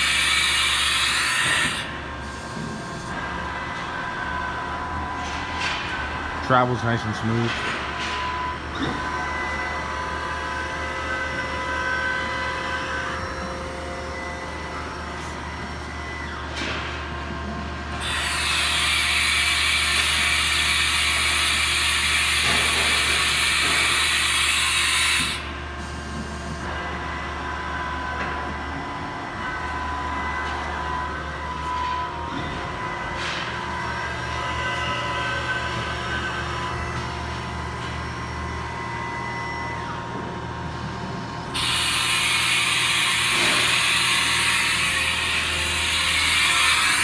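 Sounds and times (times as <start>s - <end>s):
machine axis drives humming: 19.8s - 44.3s.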